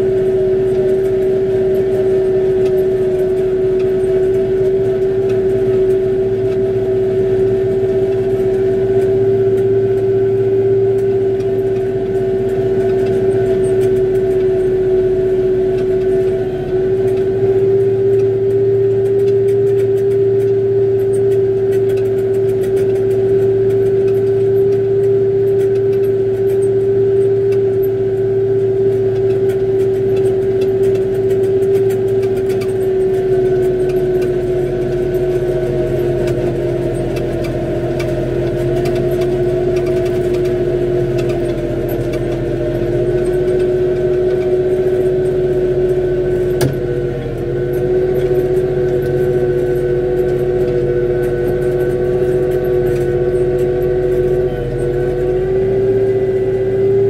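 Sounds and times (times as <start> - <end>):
constant droning tone: 0.0 - 57.0
tractor engine running: 0.0 - 57.0.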